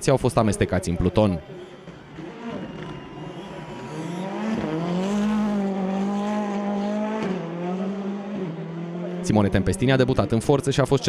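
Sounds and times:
rally car engine at high revs: 1.4 - 10.1.

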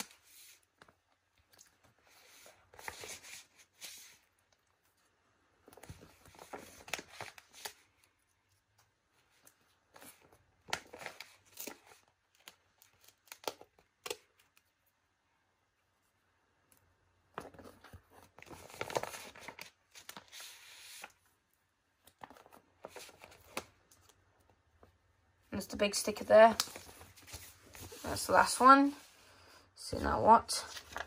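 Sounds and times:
paper rustling and crackling: 0.0 - 5.0, 5.6 - 14.7, 17.4 - 21.3, 22.0 - 25.0, 26.4 - 28.5, 30.5 - 31.0.

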